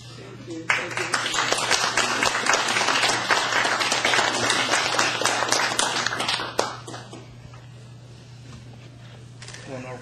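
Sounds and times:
audience applauding: 0.7s - 7.1s.

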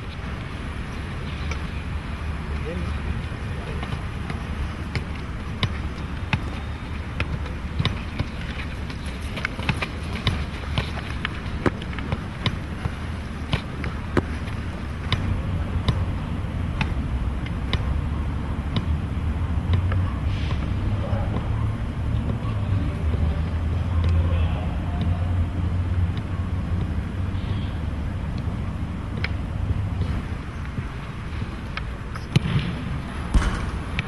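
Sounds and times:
football knocks: 3.8s - 16.1s, 32.3s - 34.0s
steady low rumble: 25.1s - 34.0s.

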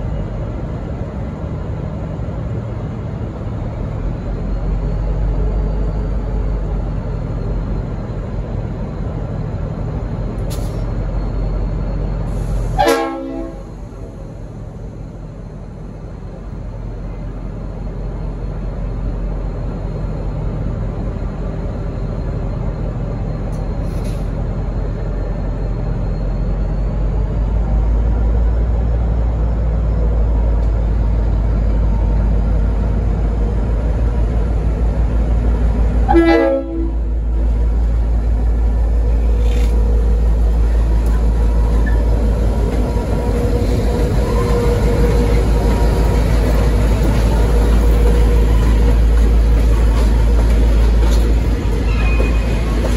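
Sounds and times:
diesel locomotive rumble: 0.0s - 52.9s
locomotive horn toot: 12.7s - 13.8s, 36.0s - 37.2s.

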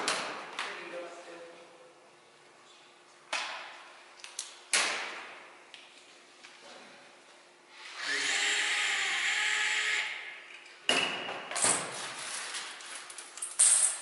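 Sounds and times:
cordless drill running: 7.8s - 10.2s.

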